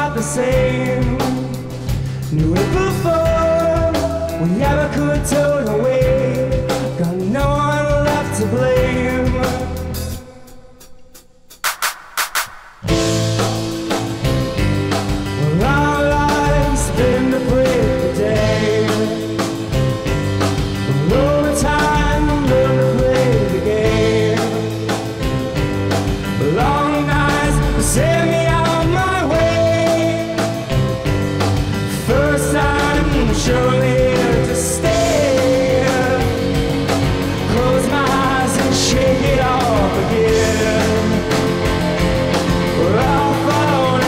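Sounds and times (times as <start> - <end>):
bass guitar: 0.0 - 10.6, 12.8 - 44.0
man singing: 0.0 - 11.0, 15.3 - 19.9, 20.8 - 25.4, 26.3 - 31.0, 31.8 - 44.0
drum kit with cymbals: 0.0 - 44.0
electric guitar: 12.8 - 44.0.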